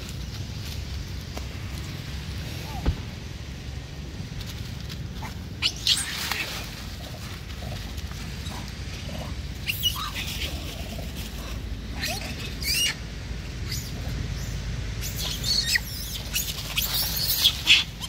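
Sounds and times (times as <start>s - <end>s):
low rumble: 0.0s - 15.6s
monkeys squeaking and squealing: 5.2s - 7.0s, 8.4s - 18.0s.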